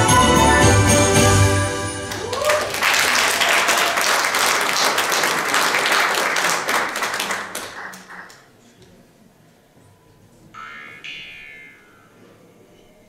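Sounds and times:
audience applause: 2.0s - 8.6s.

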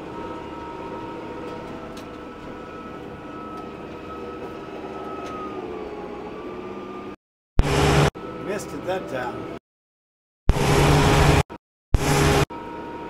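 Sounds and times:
engine whine: 0.0s - 9.6s, 10.5s - 13.0s
tractor engine droning: 0.0s - 9.6s.

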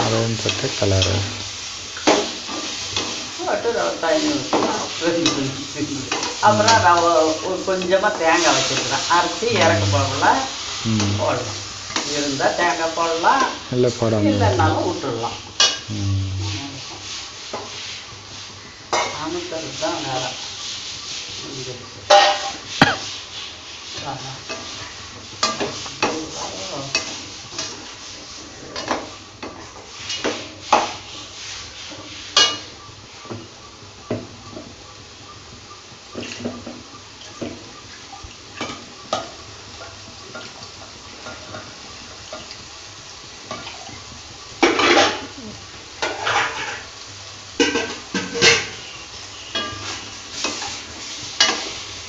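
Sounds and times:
metal ladle scraping metal pan: 6.1s - 7.4s.

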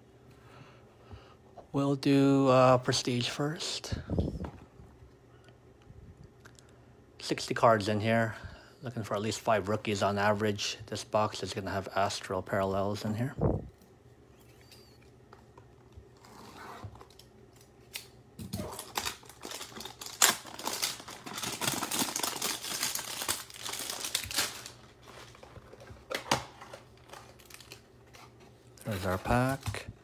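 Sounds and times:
cardboard tearing and crinkling: 18.5s - 25.4s, 26.1s - 28.3s.

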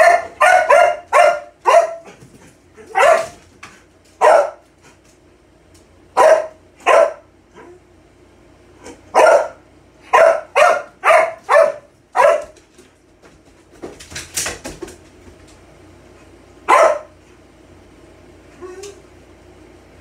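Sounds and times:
dog barking: 0.0s - 2.2s, 2.8s - 3.4s, 4.2s - 4.6s, 6.2s - 7.7s, 9.1s - 12.6s, 16.7s - 17.2s.

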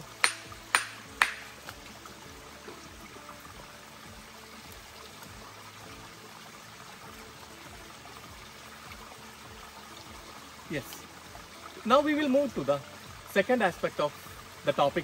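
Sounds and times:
stream water rushing: 0.0s - 15.0s.

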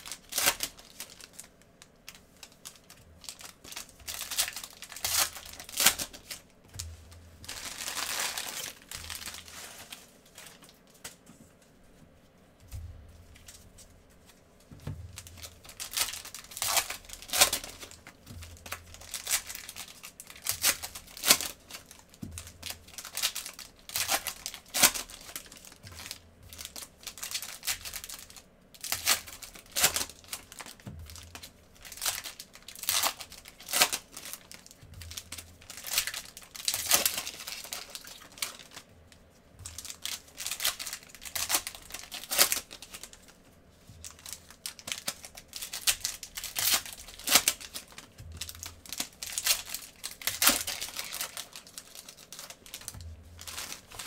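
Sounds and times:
foil wrappers tearing and crinkling: 0.0s - 6.5s, 7.4s - 11.2s, 15.1s - 38.9s, 39.6s - 43.4s, 44.0s - 54.0s.

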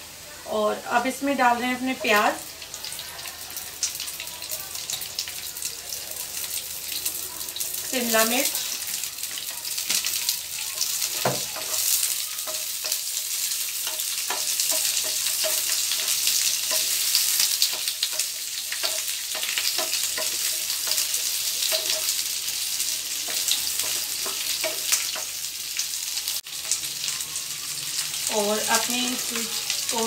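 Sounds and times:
vegetables sizzling in oil: 0.0s - 30.0s
wooden spatula knocking on pan: 11.1s - 11.9s.

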